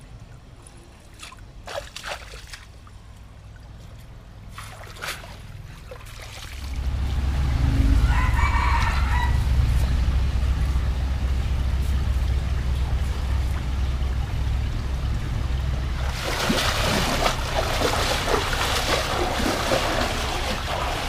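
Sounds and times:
steady low rumble: 2.8s - 21.0s
rooster crowing: 7.6s - 9.8s.

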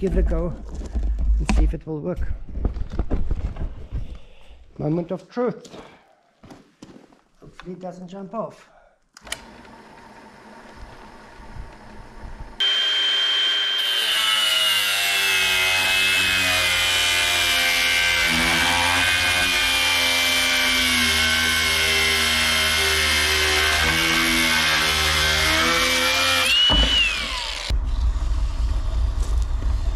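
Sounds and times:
angle grinder cutting metal: 12.6s - 27.7s.

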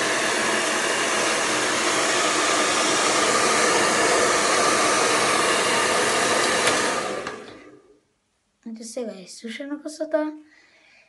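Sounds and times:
hair dryer blowing: 0.0s - 8.0s.

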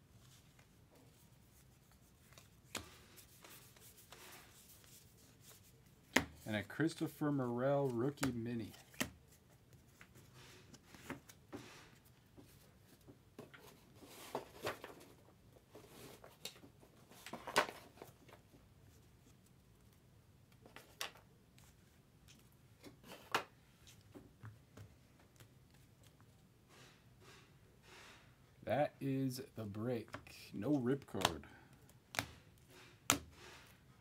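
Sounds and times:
trading cards rustling and clicking: 0.3s - 11.4s, 20.6s - 24.5s, 30.0s - 33.7s.

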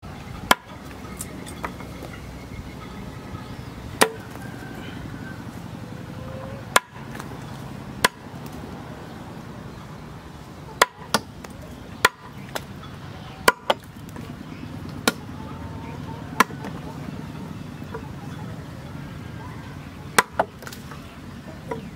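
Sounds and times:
cleaver chopping on wood: 0.5s - 0.7s, 4.0s - 4.4s, 6.7s - 7.3s, 8.0s - 8.2s, 10.8s - 12.7s, 13.4s - 14.2s, 15.0s - 15.3s, 16.4s - 16.8s, 20.2s - 20.8s.

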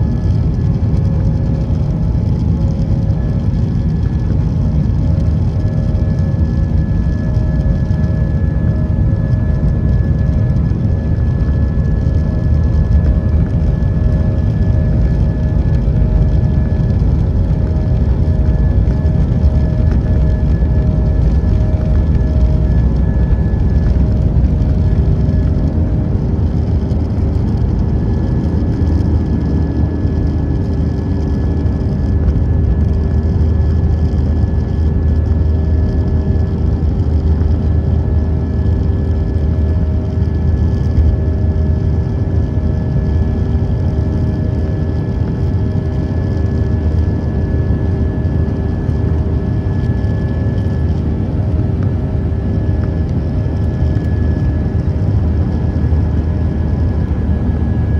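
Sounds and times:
jet engines and rushing air: 0.0s - 57.9s
whining tones: 4.0s - 39.6s.

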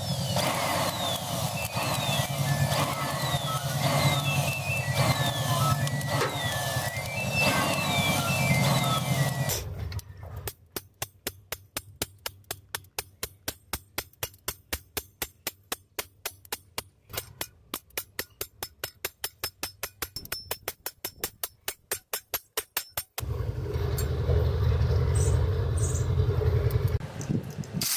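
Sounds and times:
hammer striking metal blade: 10.4s - 23.2s.

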